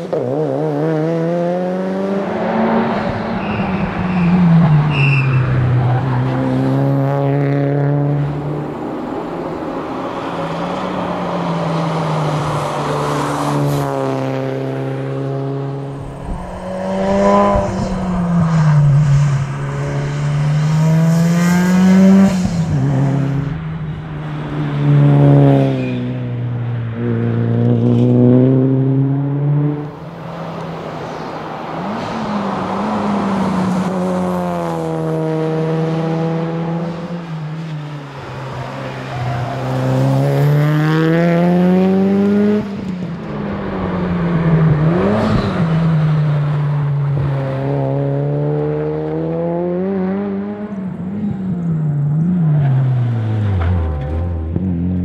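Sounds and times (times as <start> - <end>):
rally car engine revving: 0.0 - 4.8, 12.1 - 26.2, 39.0 - 55.0.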